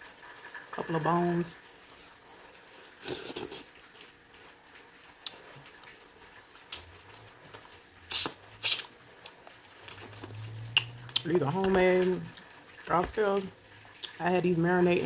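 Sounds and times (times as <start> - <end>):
low steady hum: 0.0 - 15.0
wet mouth smacks while eating: 8.1 - 8.9, 9.9 - 11.2.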